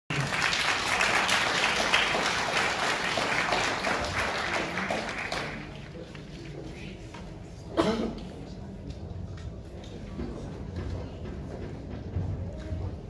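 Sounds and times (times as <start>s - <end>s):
audience applauding: 0.1s - 6.1s.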